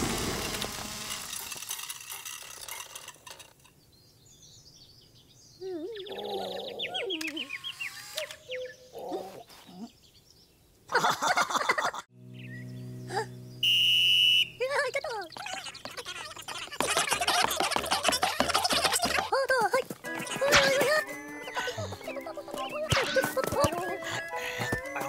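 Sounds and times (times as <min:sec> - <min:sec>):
low buzzing hum: 0:00.0 - 0:01.7, 0:12.1 - 0:15.3
squeaky cartoon creature vocals: 0:15.3 - 0:19.3.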